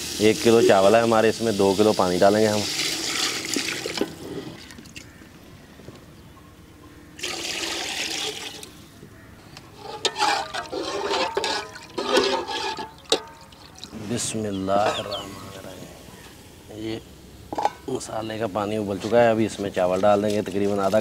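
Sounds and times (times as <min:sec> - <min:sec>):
water splashing into pot: 0:01.8 - 0:05.1, 0:07.2 - 0:08.7, 0:09.9 - 0:14.0
spatula scraping metal pot: 0:09.7 - 0:13.8.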